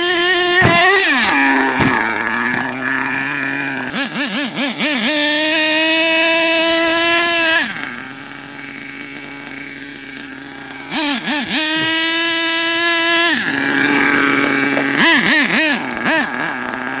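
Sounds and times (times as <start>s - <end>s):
rc truck nitro engine revving: 0.0s - 17.0s.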